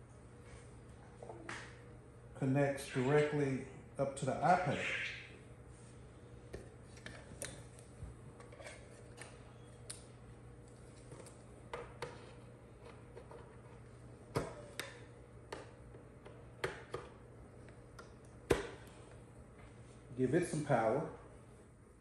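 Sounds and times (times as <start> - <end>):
faint steady hum: 0.0 - 22.0.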